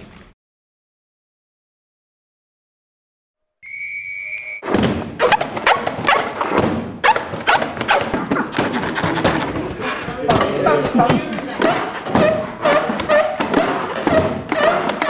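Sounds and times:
high-pitched squeal: 3.6 - 4.6
balloons squeaking and thumping: 4.6 - 15.0.

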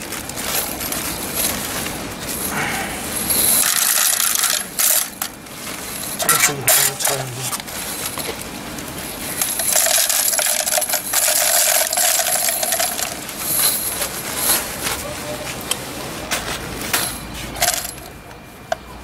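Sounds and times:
metal eyelets clinking: 3.1 - 8.3, 9.1 - 14.7
metal eyelets jingling: 3.1 - 8.3, 9.0 - 14.8, 17.0 - 18.2.

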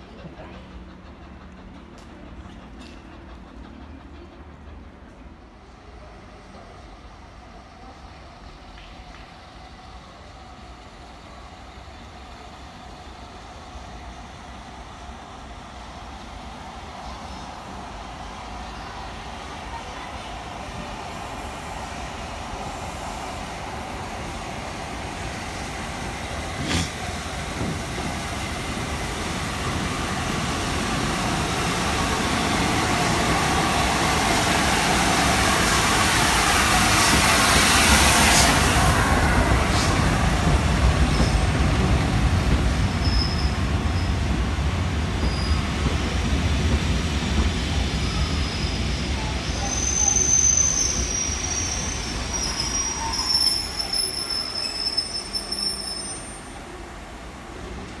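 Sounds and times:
steam locomotive passing: 0.0 - 58.0.

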